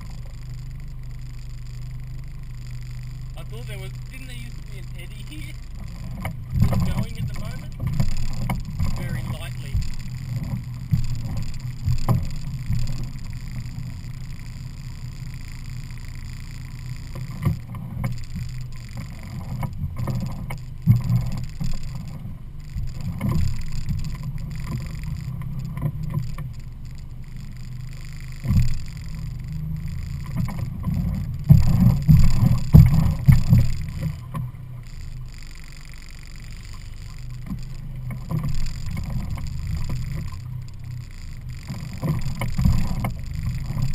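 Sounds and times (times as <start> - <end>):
low buffeting thumps: 0.0 - 43.9
outboard motor rumbling: 0.0 - 43.9.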